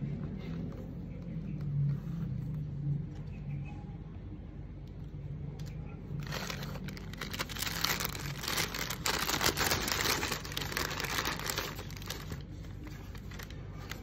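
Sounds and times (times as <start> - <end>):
tissue paper crinkling: 6.2 - 14.0.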